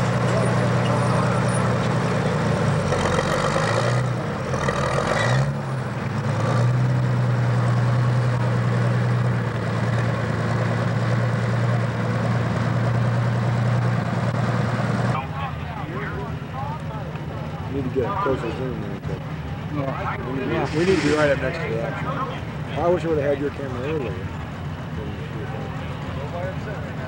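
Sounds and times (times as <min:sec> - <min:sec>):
diesel engine running: 0:00.0 - 0:27.0
short rushes of noise: 0:20.5 - 0:21.6.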